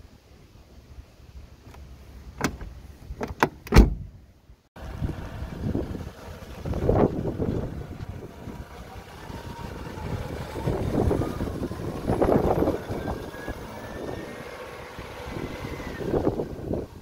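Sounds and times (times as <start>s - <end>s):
diesel engine running: 4.8s - 17.0s.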